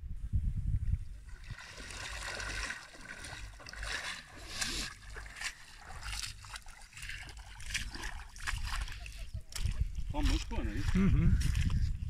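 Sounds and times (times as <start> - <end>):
wind rumble on microphone: 0.0 - 3.7, 7.2 - 12.0
footsteps splashing in water: 1.3 - 12.0.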